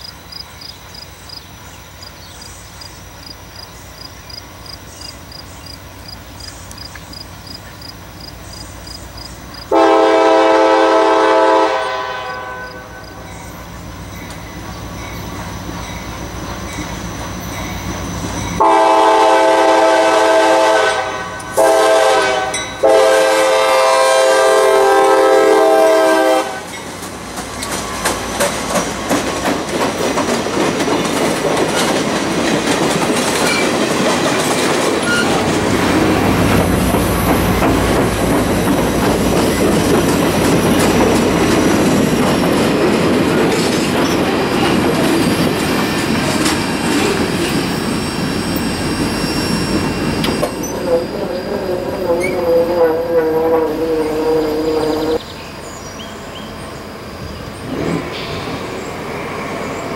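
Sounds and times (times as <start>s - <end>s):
train rumble: 0.0s - 59.9s
diesel locomotive horn blasts: 9.7s - 13.3s, 18.6s - 26.8s, 50.4s - 55.2s
wheels clicking over rail joints: 26.6s - 54.3s.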